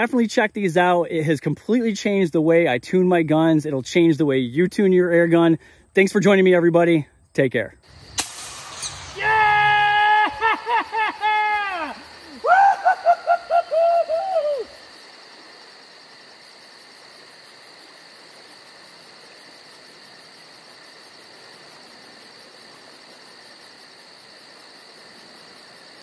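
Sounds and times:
insects chirping: 7.1 - 26.0.

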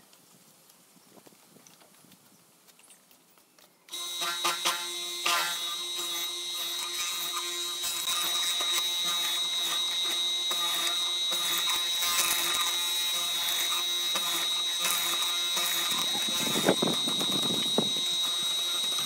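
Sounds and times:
mortiser whining: 3.9 - 19.0.

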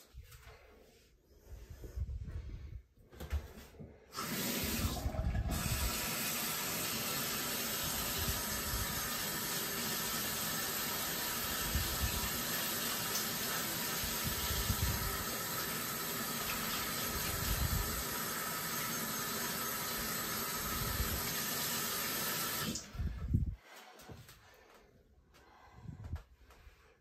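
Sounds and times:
hands being washed: 4.2 - 22.9.

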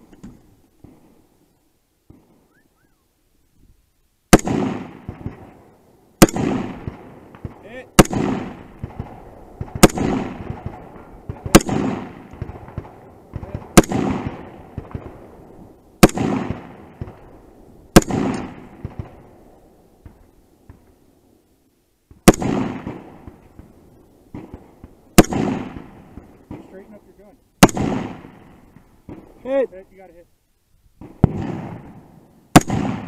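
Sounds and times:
rifle shots with echo: 4.3 - 20.8, 22.2 - 23.7, 24.3 - 29.7, 31.0 - 33.0.

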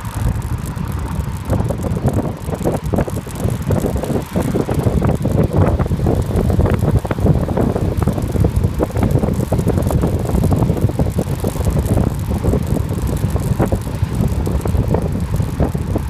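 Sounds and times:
bike clicks and rattles: 0.0 - 16.0
wind rumbling on microphone: 0.0 - 16.0.

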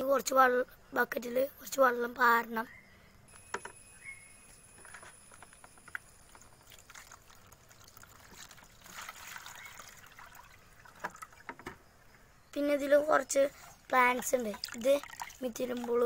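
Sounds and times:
water pouring into plastic tub: 6.2 - 11.6, 13.5 - 16.0
plastic knocks: 11.0 - 11.8.

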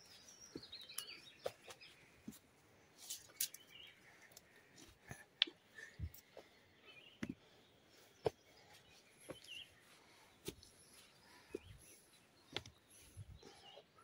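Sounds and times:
footsteps on stony trail: 0.0 - 3.6, 7.2 - 13.7.

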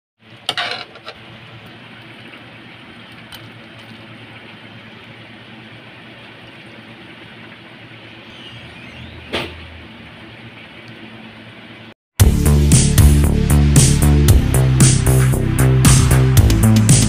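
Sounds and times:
low hum with hiss: 0.2 - 12.0.

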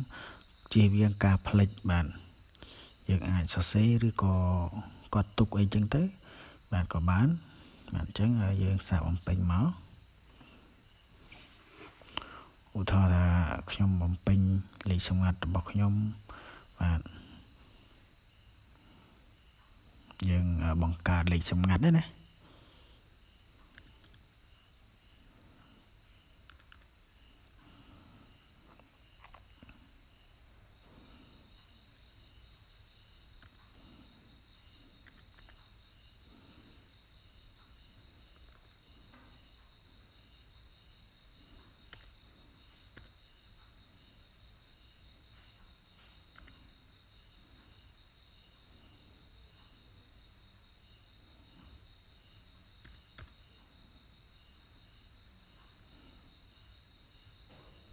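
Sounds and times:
crickets chirring: 0.0 - 57.9
computer keys clicking: 23.7 - 24.2, 26.4 - 26.9, 33.3 - 33.7, 35.0 - 35.6, 41.9 - 42.2, 42.9 - 43.2, 46.3 - 46.6, 52.8 - 53.4.

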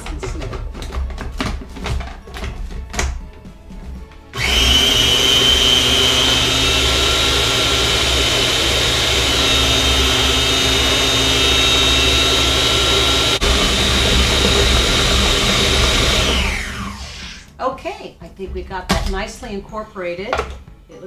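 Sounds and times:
food processor blending: 4.4 - 17.5.

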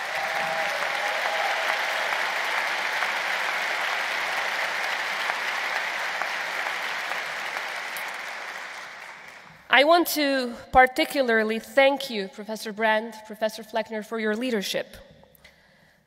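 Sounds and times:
audience applauding: 0.0 - 9.7.

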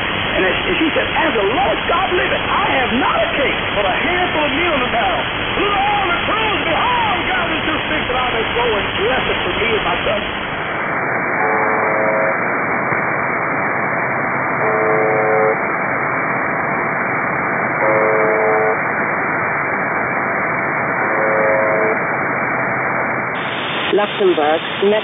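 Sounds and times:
static hiss: 0.0 - 25.0
harsh radio buzz: 0.3 - 13.2, 14.5 - 15.7, 17.7 - 25.0.

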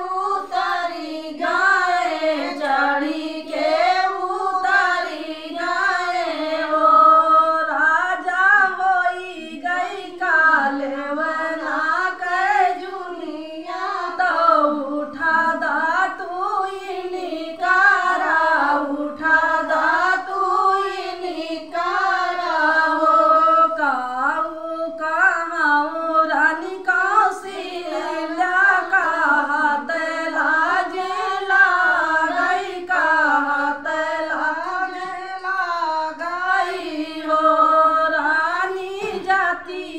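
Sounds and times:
women singing folk song: 0.0 - 39.9.

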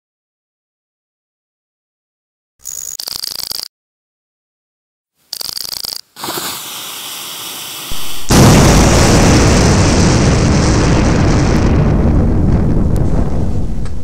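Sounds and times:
loud explosion-like blast: 7.9 - 14.0.

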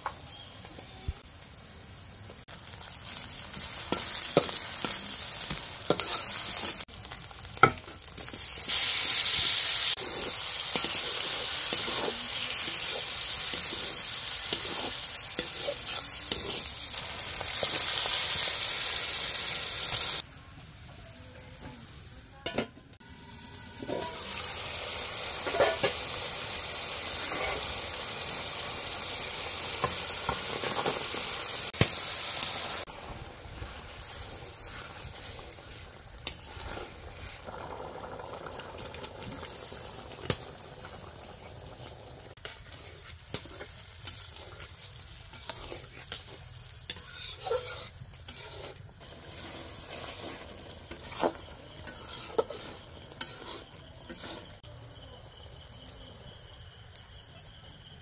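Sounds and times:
food sizzling in hot oil: 0.0 - 58.0
spatula scraping pan: 3.8 - 6.9, 9.8 - 17.0, 25.4 - 26.0, 32.8 - 37.5, 42.4 - 54.6.

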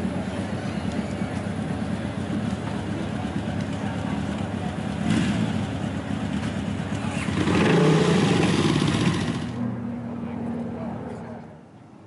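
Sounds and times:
motorcycle engine revving: 4.2 - 9.6.

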